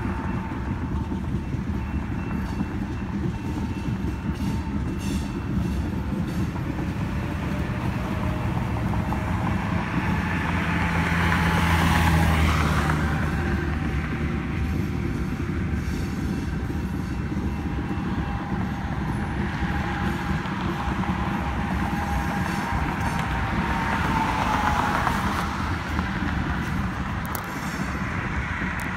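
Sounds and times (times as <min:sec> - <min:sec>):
road vehicle passing: 0:00.0 - 0:28.9
train cars rumbling and clattering: 0:00.0 - 0:28.9.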